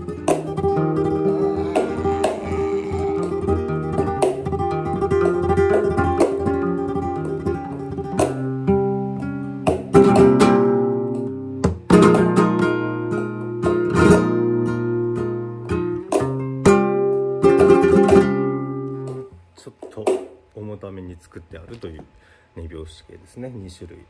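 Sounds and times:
flamenco guitar: 0.0 - 20.6.

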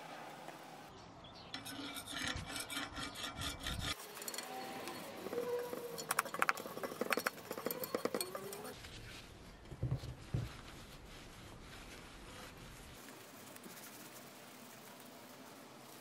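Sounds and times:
cloth rubbing on metal frame: 1.6 - 16.0
paint flakes clicking and clinking: 3.9 - 8.8.

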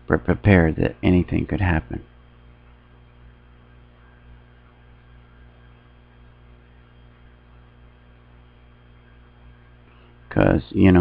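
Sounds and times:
mains hum with faint hiss: 0.0 - 11.0.

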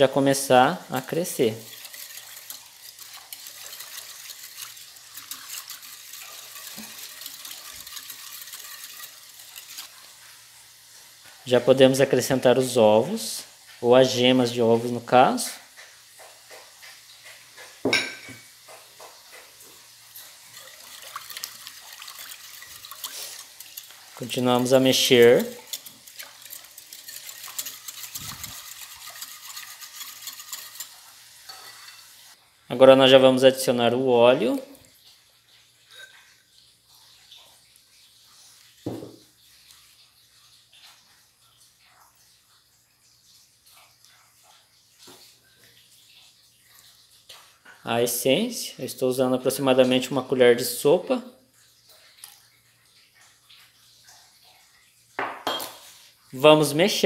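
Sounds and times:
liquid swishing: 0.0 - 11.6, 19.3 - 32.0
whisk wires clicking against bowl: 0.9 - 10.0, 20.1 - 31.6.

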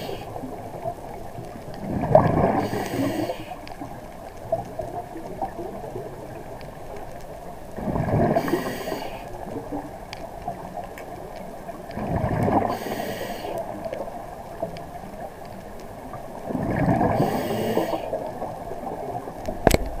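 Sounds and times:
scuba regulator breathing underwater: 0.0 - 0.5, 2.0 - 3.7, 7.9 - 9.4, 12.5 - 13.8, 16.8 - 18.3
exhaled bubbles gurgling: 0.0 - 20.0.

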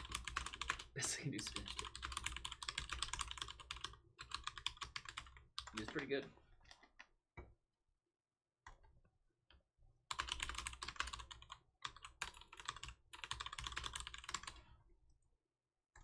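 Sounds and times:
typing on computer keyboard: 0.0 - 7.1, 10.1 - 14.7.

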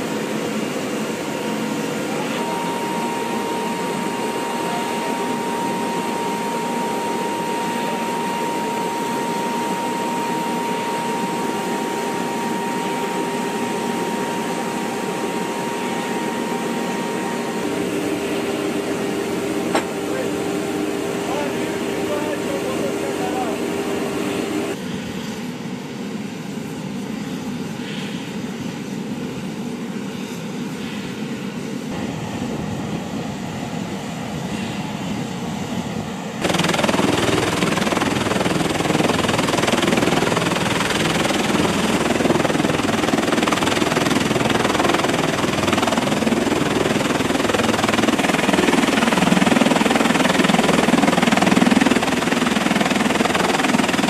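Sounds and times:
aircraft engine drone in cabin: 0.0 - 54.0
rushing rotor and engine noise: 0.0 - 54.0.

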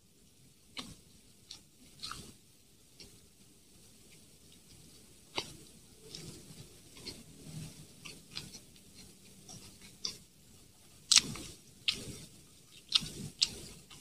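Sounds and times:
wet chewing and lip smacks: 11.1 - 14.0.

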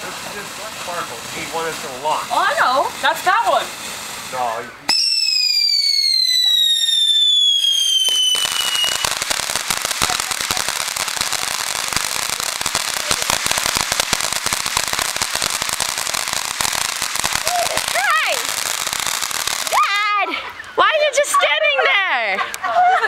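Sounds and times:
dense fast firework crackling: 0.0 - 20.7
firework whistle falling in pitch: 4.9 - 9.2.

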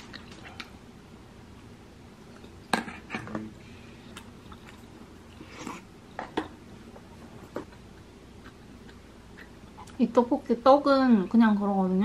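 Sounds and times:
person chewing: 3.9 - 5.9, 7.6 - 10.0.

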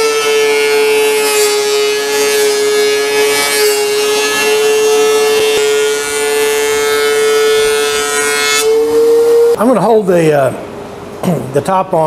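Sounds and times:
thickness planer whining: 0.0 - 9.6.

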